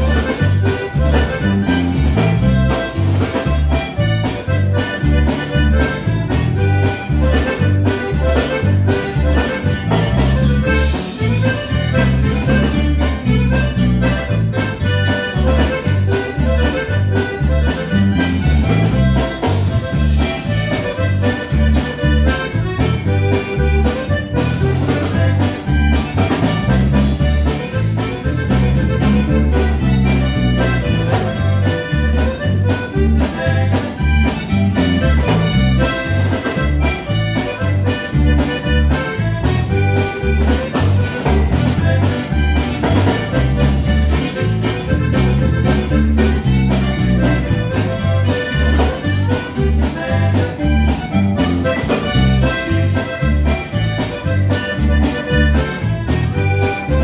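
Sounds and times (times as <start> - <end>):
band playing: 0.0 - 57.0
button accordion melody: 0.0 - 57.0.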